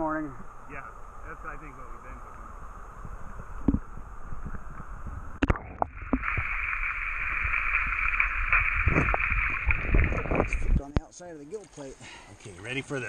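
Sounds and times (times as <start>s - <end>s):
muffled underwater rushing water: 0.5s - 11.0s
camera knocking into water: 8.2s - 10.8s.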